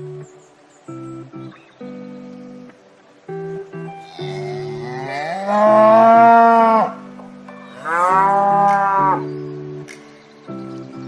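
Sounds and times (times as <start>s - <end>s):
background music: 0.0s - 11.0s
cow mooing: 4.0s - 7.0s, 7.8s - 9.3s.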